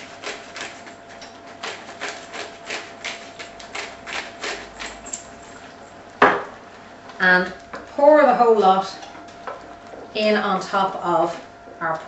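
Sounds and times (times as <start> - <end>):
pepper mill grinding: 1.6 - 5.6.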